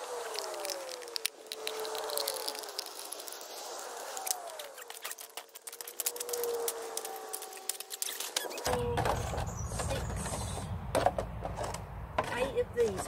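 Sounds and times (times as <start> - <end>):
handling clicks and crackles: 0.0 - 10.0.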